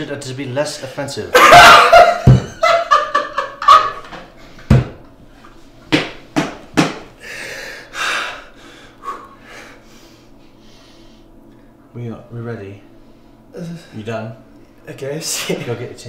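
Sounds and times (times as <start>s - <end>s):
knocks on a countertop: 2.2s - 2.5s, 4.7s - 5.0s, 5.9s - 7.0s
man panting: 7.2s - 10.3s.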